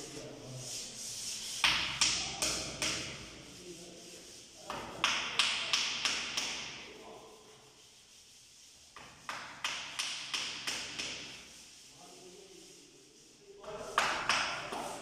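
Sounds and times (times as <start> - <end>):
sharp taps on wall panel: 4.7 - 6.8, 9.0 - 11.4, 13.6 - 15.0.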